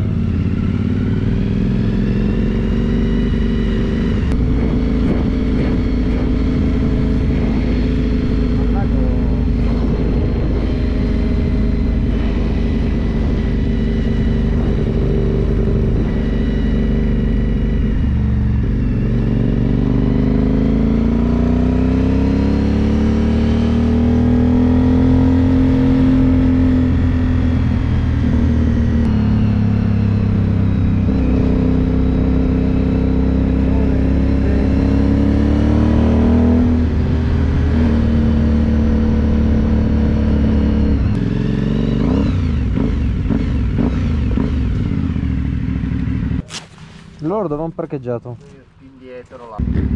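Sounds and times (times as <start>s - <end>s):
motorcycle engine accelerating: 0.0s - 49.9s
wind rushing: 4.2s - 19.0s.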